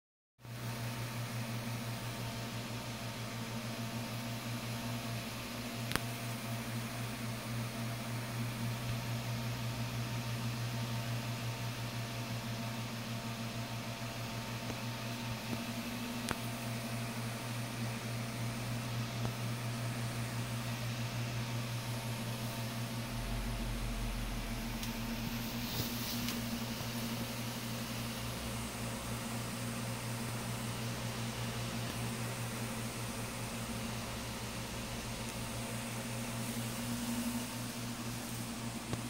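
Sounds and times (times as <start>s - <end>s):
electric fan motor hum: 0.4s - 39.0s
deep rumble: 23.0s - 25.9s
air hissing: 24.7s - 27.2s.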